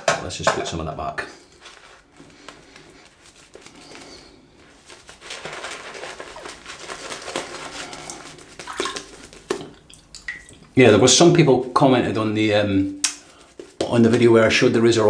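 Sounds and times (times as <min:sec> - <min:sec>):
shaving brush lathering face: 0:01.6 - 0:09.9, 0:13.2 - 0:14.5.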